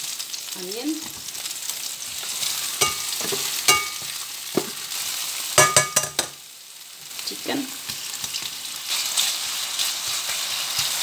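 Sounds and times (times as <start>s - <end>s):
food sizzling in hot oil: 0.0s - 11.0s
spatula knocking against pan: 2.8s - 4.7s, 5.6s - 6.4s.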